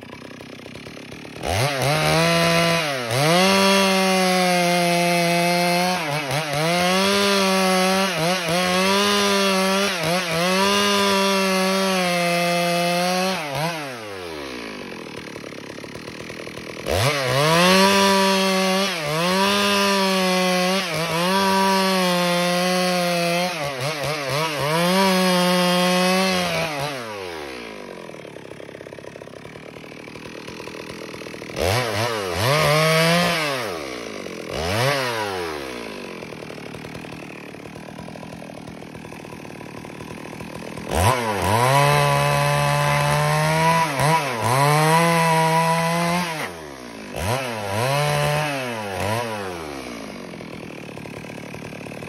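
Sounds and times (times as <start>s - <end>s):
chainsaw cutting log: 0.0s - 52.0s.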